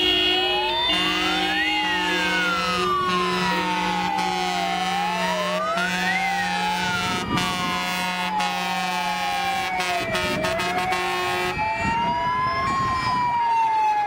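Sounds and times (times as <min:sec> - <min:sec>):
steady horn-like tone: 0:00.0 - 0:05.1, 0:05.7 - 0:09.1, 0:09.7 - 0:11.6
fire engine sirens wailing: 0:00.0 - 0:14.0.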